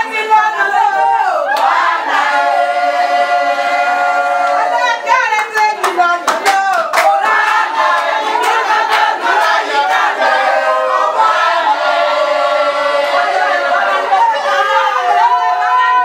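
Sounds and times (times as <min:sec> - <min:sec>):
crowd singing in chorus: 0:00.0 - 0:05.3, 0:06.0 - 0:16.0
hand claps: 0:01.5 - 0:01.8, 0:05.4 - 0:09.6.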